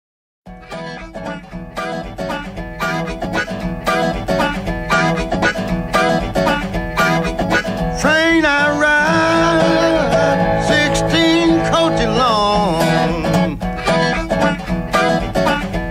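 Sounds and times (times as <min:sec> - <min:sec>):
bass line: 0:00.5 - 0:15.9
bending lead guitar note: 0:00.5 - 0:15.9
electric guitar rhythm picking: 0:00.5 - 0:15.9.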